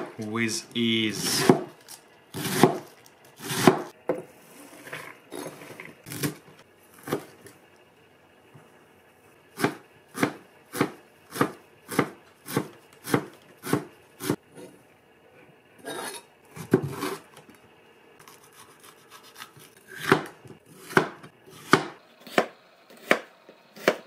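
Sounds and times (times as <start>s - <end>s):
knife chopping on cutting board: 1.2s - 1.7s, 2.4s - 4.2s, 9.6s - 14.4s, 18.4s - 24.0s.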